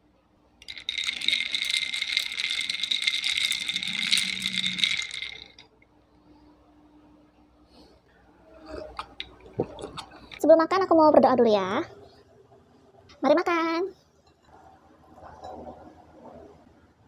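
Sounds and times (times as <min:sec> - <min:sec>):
metal straw clinking ice in glass: 0:00.6 - 0:05.6.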